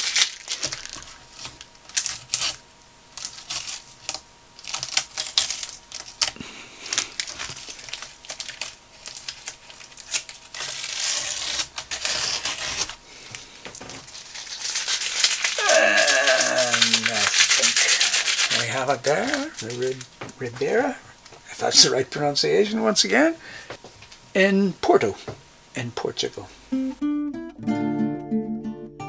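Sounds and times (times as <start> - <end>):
masking tape peeling off paper: 0.0 - 20.2.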